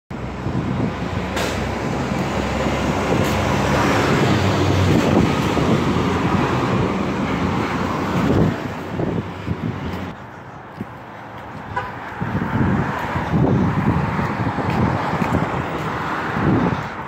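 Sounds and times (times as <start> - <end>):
road noise: 0.1 - 17.0
truck diesel engine passing: 0.2 - 11.4.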